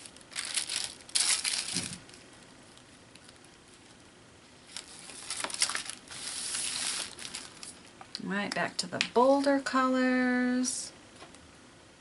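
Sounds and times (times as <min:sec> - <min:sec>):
wax paper crinkling: 0:00.0 - 0:08.1.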